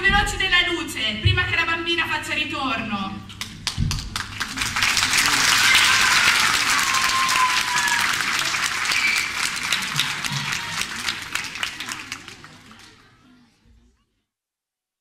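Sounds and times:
audience applauding: 0:03.4 - 0:13.2
sliding whistle-like tone: 0:08.9 - 0:09.4.

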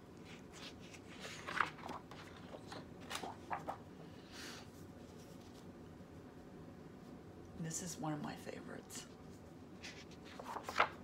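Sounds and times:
paper pages turning: 0:00.2 - 0:03.9, 0:09.3 - 0:11.0.

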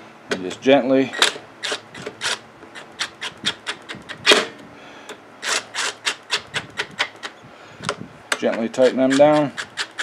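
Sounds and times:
cordless impact driver bursts: 0:05.4 - 0:07.4.

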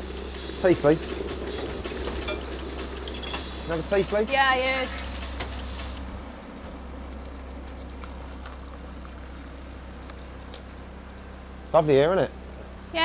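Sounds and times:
steady low hum: 0:00.0 - 0:13.0
water pouring into cup: 0:06.7 - 0:10.8.

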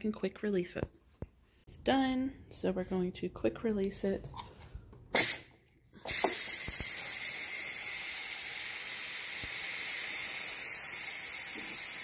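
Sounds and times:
pressure cooker steam hissing: 0:05.2 - 0:12.0.

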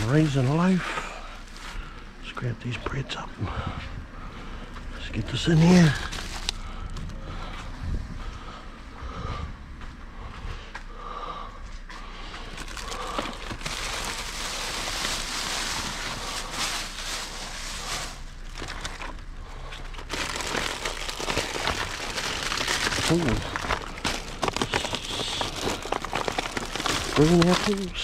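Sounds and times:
plastic bags crinkling and rustling: 0:00.0 - 0:02.0, 0:05.3 - 0:07.1, 0:12.4 - 0:28.0.

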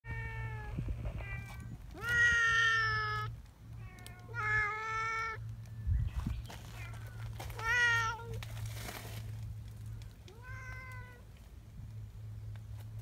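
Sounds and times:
cat meowing: 0:00.1 - 0:05.4, 0:10.3 - 0:11.2.

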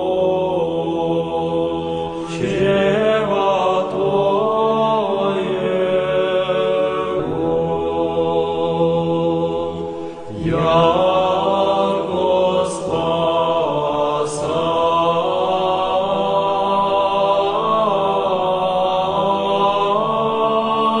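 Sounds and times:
chanted singing voices: 0:00.0 - 0:21.0
low drone: 0:00.0 - 0:21.0.

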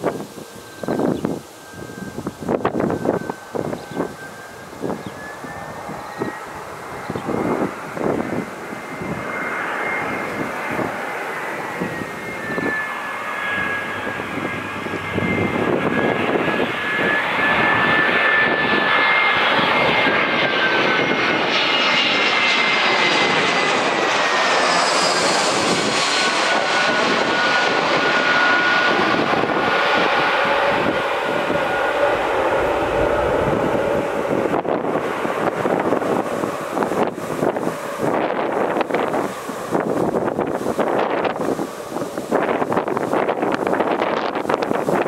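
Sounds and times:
high engine whine: 0:00.0 - 0:45.0
jet plane passing overhead: 0:00.0 - 0:45.0
loud rushing noise: 0:30.4 - 0:43.7.

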